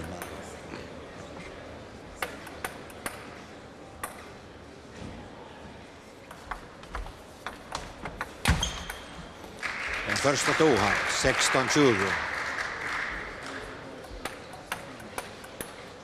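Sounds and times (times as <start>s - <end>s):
audience applause: 9.6s - 13.8s
table tennis ball bouncing: 14.0s - 16.0s.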